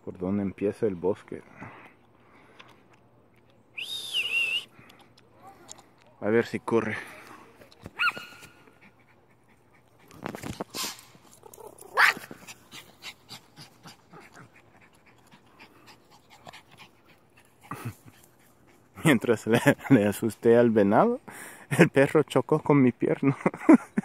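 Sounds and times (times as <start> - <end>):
dog high cry: 8.0 - 8.6, 11.4 - 12.9
dog panting: 8.5 - 11.5, 12.2 - 20.0.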